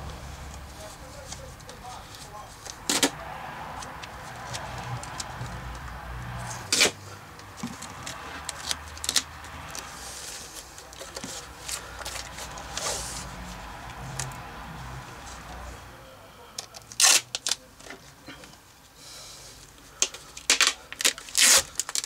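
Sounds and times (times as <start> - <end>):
tape being pulled: 6.4 - 7.0, 16.8 - 17.6, 20.0 - 22.0
tape and plastic hose rustling: 6.4 - 14.4, 16.6 - 18.6, 19.6 - 22.0.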